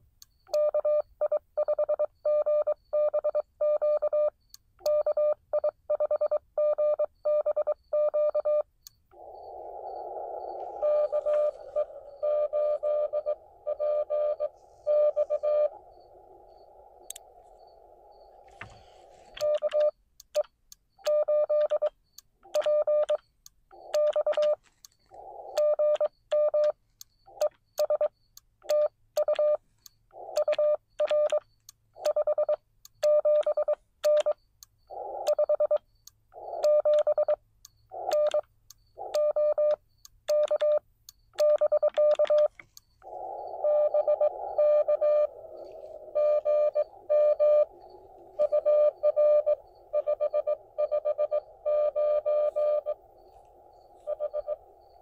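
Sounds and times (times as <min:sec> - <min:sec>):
morse code beeps: 0:00.5 - 0:21.9, 0:22.5 - 0:23.2, 0:23.8 - 0:29.6, 0:30.2 - 0:31.4, 0:32.0 - 0:40.8, 0:41.4 - 0:55.0
distant morse tone: 0:09.0 - 0:19.8, 0:42.0 - 0:55.0
radio receiver hiss: 0:09.0 - 0:19.8, 0:42.0 - 0:55.0.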